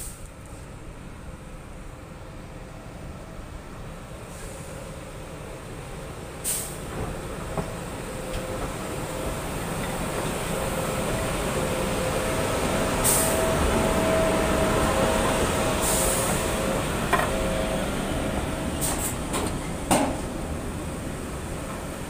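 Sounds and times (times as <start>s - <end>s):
short hiss: 0.0s - 0.3s, 6.4s - 6.8s, 13.0s - 13.4s
electric locomotive rolling past: 0.0s - 22.0s.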